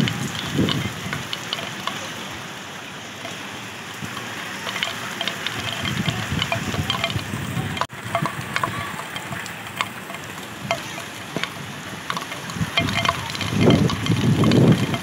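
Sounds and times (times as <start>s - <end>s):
sharp drip ticks: 0.0s - 2.6s, 3.2s - 15.0s
rain falling: 0.0s - 15.0s
low rumbles: 3.2s - 15.0s.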